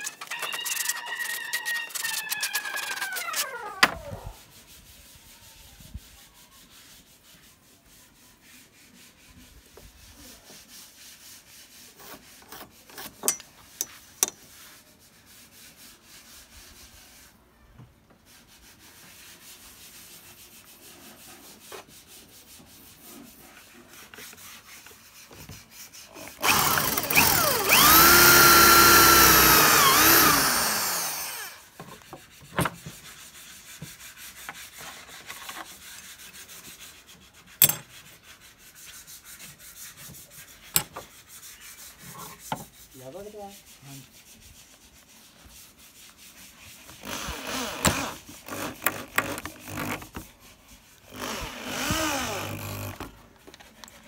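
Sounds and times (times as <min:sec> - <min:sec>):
electric drill running: 0:26.4 - 0:31.6, 0:51.2 - 0:53.0.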